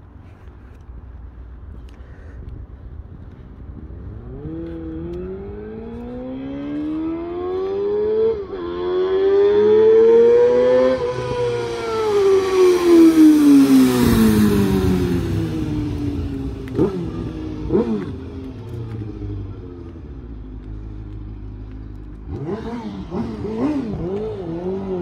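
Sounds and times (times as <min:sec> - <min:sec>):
motorcycle accelerating past: 0:04.1 - 0:19.6, 0:22.3 - 0:25.0.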